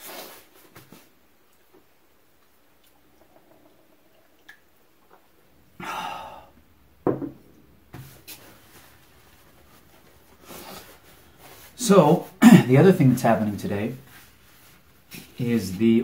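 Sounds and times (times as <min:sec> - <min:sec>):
man breathing sharply: 0:05.8 - 0:06.6
paper napkin rustling: 0:08.0 - 0:12.4, 0:13.0 - 0:15.8.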